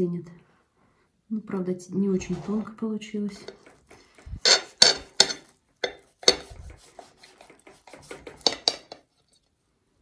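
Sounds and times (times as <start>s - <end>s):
dishes scraping: 3.3s - 9.1s
dishes and cutlery clinking: 3.4s - 6.7s, 7.3s - 9.1s.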